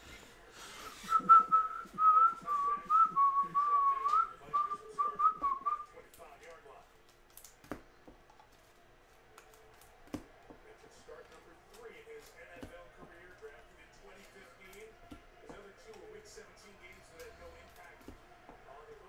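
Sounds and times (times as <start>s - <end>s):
man whistling a tune: 1.0s - 5.9s
cards clicking: 6.0s - 13.5s.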